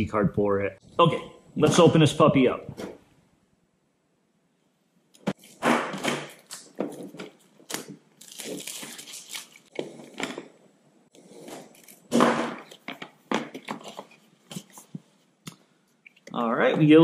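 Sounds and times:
plastic wrap tearing and crinkling: 5.4 - 10.4.

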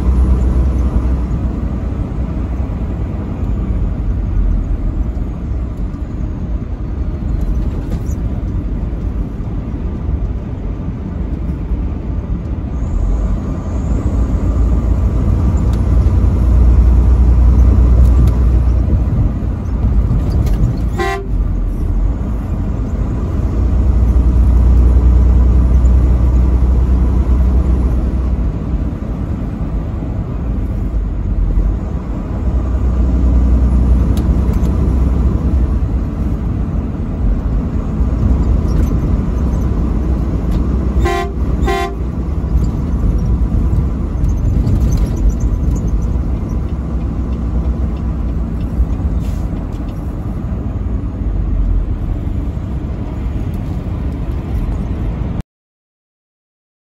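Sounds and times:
truck engine and road rumble: 0.0 - 55.4
truck horn blasts: 20.9 - 21.6, 40.9 - 42.2.

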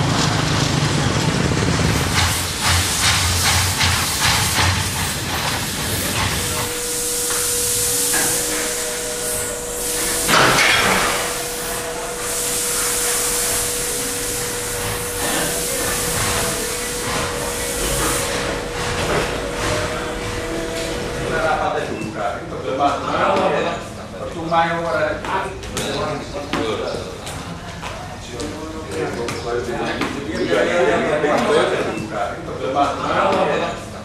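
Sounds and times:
small motorcycle engines running: 0.0 - 3.9
steady hum: 0.0 - 27.7
hiss: 1.9 - 21.3.

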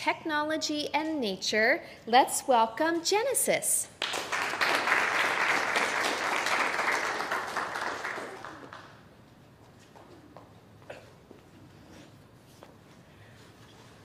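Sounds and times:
audience applauding: 4.0 - 9.1.

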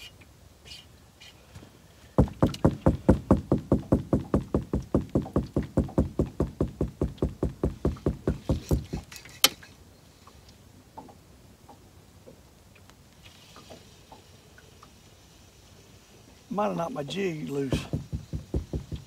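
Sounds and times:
rapid knocking on boat: 2.2 - 9.0, 17.7 - 19.0.

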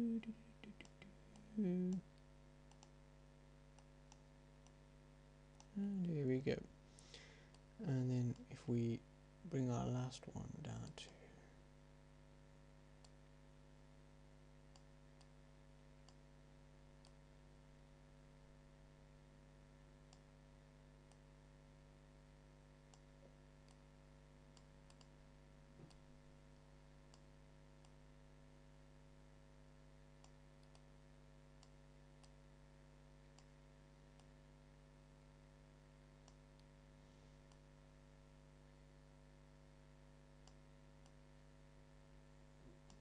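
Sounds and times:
electrical hum: 0.0 - 43.0
computer mouse clicks: 2.7 - 3.0, 16.0 - 16.2, 20.1 - 20.3, 24.5 - 25.2, 27.1 - 28.0, 30.2 - 30.9.

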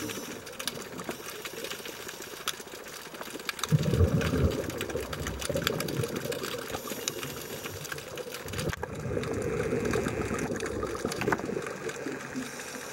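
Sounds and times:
sharp crackling clicks: 0.0 - 12.9
underwater rush of bubbles: 3.2 - 12.9.

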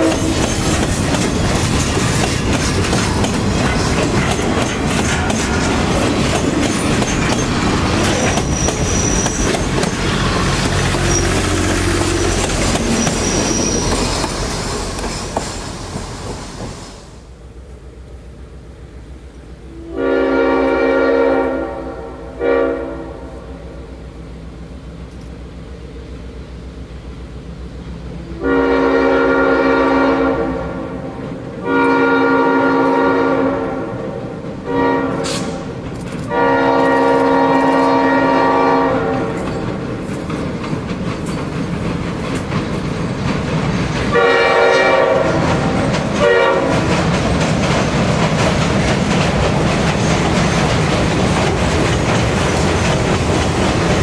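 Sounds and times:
locomotive air horn blowing: 0.0 - 0.4, 19.7 - 23.6, 28.2 - 35.7, 36.3 - 39.4, 44.1 - 45.5, 46.2 - 46.8
wheels clacking on bridge: 0.0 - 17.0, 39.3 - 54.0
train rumble: 0.0 - 54.0.

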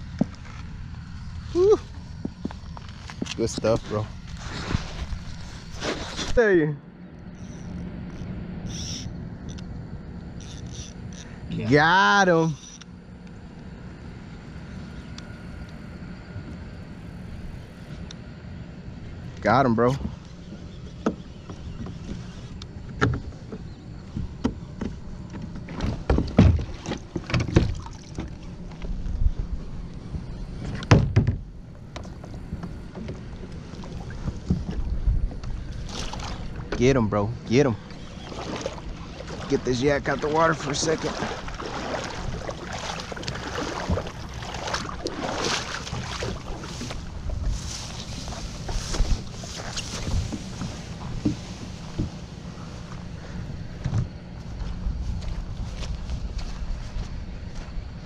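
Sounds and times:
kayak dragged over grass: 0.0 - 6.5, 21.3 - 30.8, 31.5 - 57.8
footsteps through grass: 38.2 - 53.3, 54.4 - 57.8.

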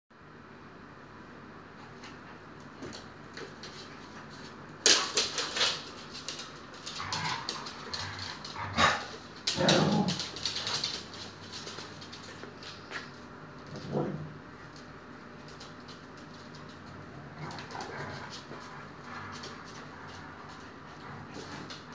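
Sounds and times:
claws clicking on wooden floor: 4.8 - 13.2.

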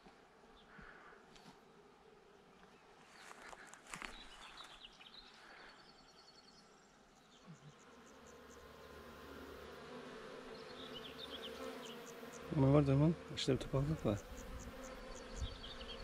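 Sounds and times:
bees buzzing: 7.4 - 16.0.

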